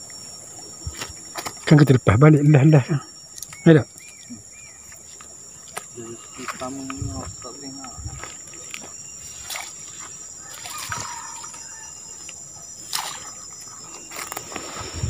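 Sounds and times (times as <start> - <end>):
insects droning: 0.0 - 15.0
water splashing and sloshing: 9.2 - 11.7, 12.8 - 14.8.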